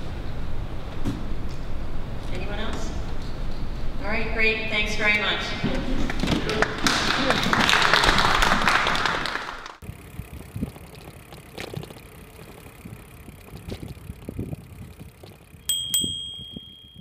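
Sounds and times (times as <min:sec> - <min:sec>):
audience clapping: 0:06.0 - 0:09.8.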